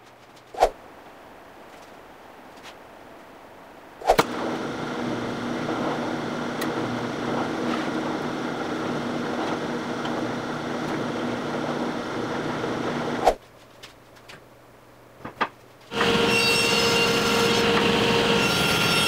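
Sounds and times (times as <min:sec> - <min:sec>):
drill bit drilling plywood: 0:04.2 - 0:13.2, 0:15.9 - 0:18.9
drill press motor running: 0:04.2 - 0:13.2, 0:15.9 - 0:16.3.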